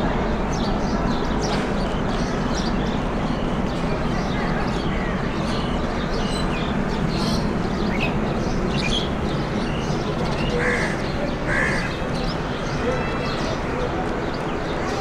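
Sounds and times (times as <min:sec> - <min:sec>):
crows cawing: 0:10.6 - 0:12.0.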